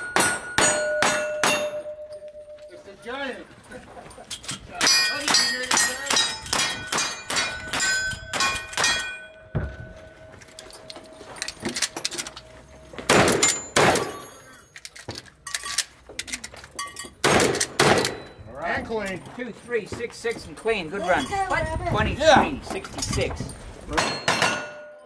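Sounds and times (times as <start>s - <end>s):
steel target ringing: 0.0s - 2.9s, 4.8s - 10.3s, 24.0s - 25.0s
gunshots: 13.1s - 14.2s, 17.2s - 18.2s
shotgun blasts: 17.2s - 18.2s.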